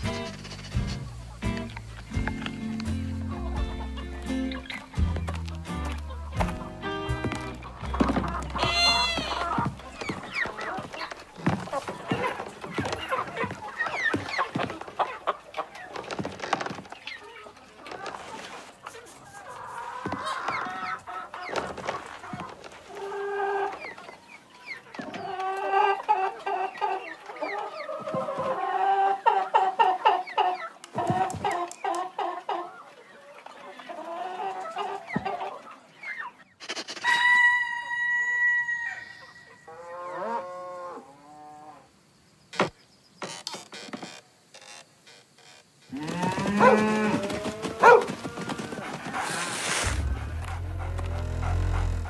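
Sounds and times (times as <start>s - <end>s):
cartoon hens clucking: 7.8s - 10.8s.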